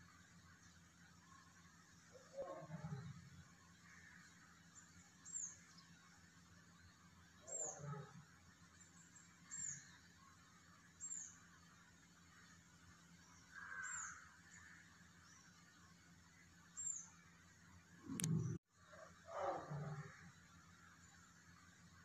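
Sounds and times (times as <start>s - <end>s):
bird chirping: 4.0s - 8.1s, 8.7s - 10.3s, 11.0s - 11.5s, 13.2s - 15.8s, 16.7s - 17.3s
low soft sounds: 18.0s - 19.0s.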